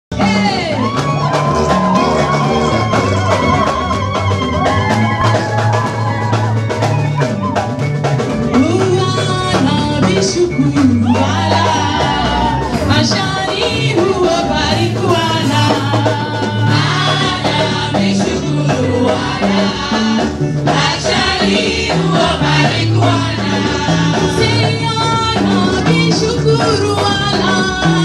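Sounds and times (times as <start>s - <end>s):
band playing dance music: 0.1s - 28.0s
drum kit: 0.1s - 28.0s
choir singing: 11.2s - 26.0s.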